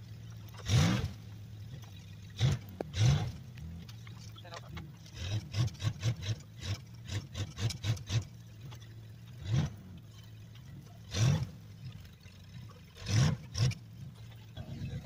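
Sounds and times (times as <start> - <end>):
truck engine revving: 0.6 - 1.2, 2.4 - 3.8, 5.1 - 8.4, 9.4 - 10.0, 11.0 - 11.6, 13.0 - 13.8.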